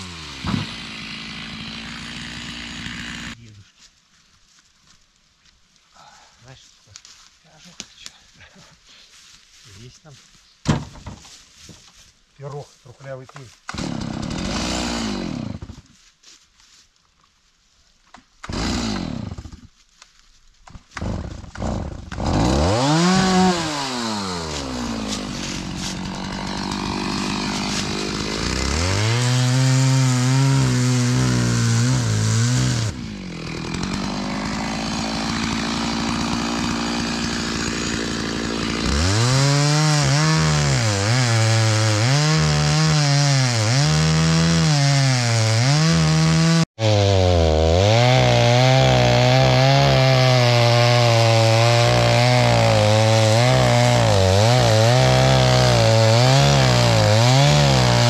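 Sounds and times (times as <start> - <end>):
chainsaw cutting logs: 0.0 - 3.5, 13.3 - 16.0, 18.1 - 20.0, 20.6 - 58.0.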